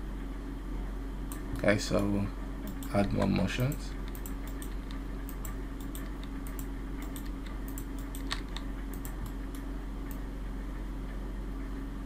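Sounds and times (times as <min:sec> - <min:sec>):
low electrical hum: 0:00.0 - 0:12.0
keyboard and mouse clicking: 0:02.6 - 0:10.2.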